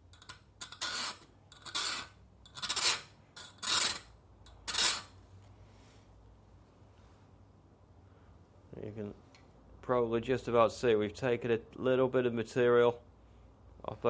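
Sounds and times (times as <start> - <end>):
drill bit rasping on a file: 0.6 - 5.1.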